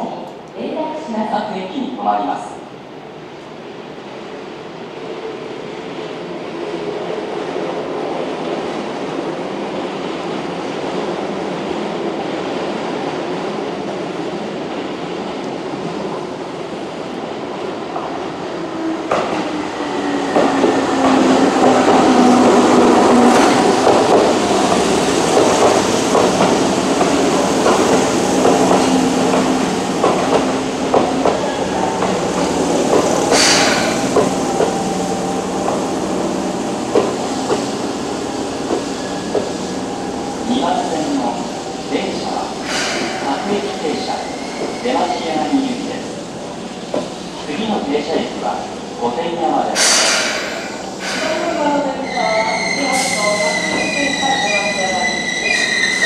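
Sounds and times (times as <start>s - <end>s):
train wheels clattering over rail joints: 20.3s - 34.8s, 36.9s - 37.8s
high brake squeal: 49.8s - 56.0s.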